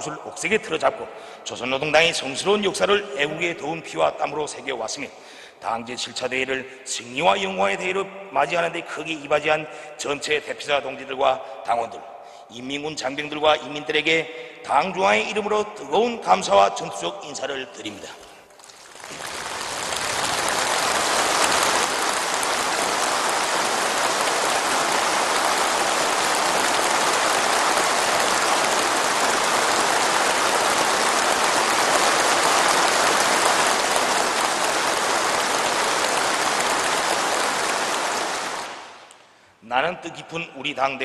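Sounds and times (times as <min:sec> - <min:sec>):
large crowd applauding: 0:18.6 - 0:39.1.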